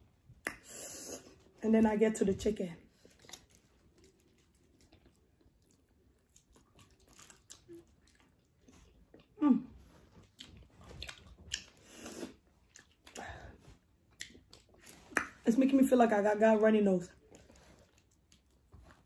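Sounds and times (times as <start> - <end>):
wet mouth clicks and smacks: 0.4 - 0.7, 14.2 - 15.4
chewing and biting: 2.9 - 13.2.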